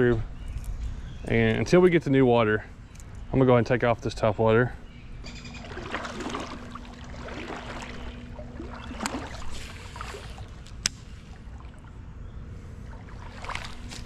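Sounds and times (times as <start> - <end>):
faint steady hum: 0.0 - 14.0
water sloshing around wading legs: 5.1 - 14.0.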